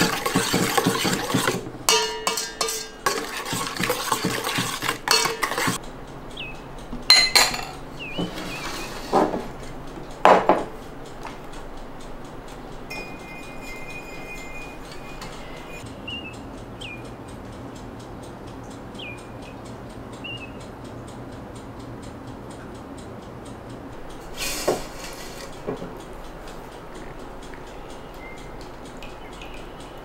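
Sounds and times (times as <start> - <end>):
kitchenware clattering: 0.0 - 5.8, 7.0 - 10.8, 12.9 - 15.8, 24.1 - 26.0
metal clank: 0.0 - 5.8, 7.0 - 7.8
steady low hum: 1.4 - 30.0
bird chirps: 6.3 - 6.7, 7.9 - 9.0, 12.9 - 17.2, 19.0 - 19.6, 20.2 - 20.7, 27.6 - 30.0.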